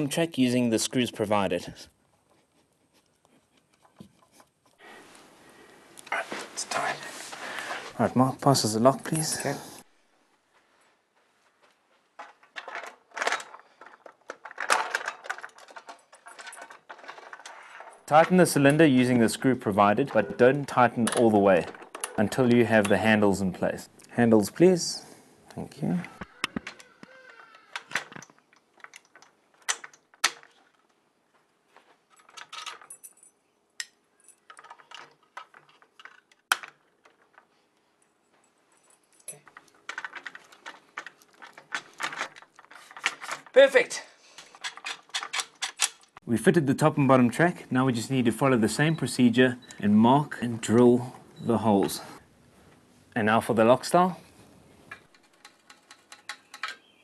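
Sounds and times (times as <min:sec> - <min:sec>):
keys and lock rattling: 0:12.2 - 0:18.8, 0:32.1 - 0:37.6, 0:38.3 - 0:43.6, 0:44.5 - 0:46.2, 0:54.9 - 0:57.0
metal handle parts clicking: 0:12.2 - 0:24.1, 0:25.5 - 0:31.0, 0:32.1 - 0:46.2, 0:54.8 - 0:57.0
keys jangling: 0:38.7 - 0:42.5.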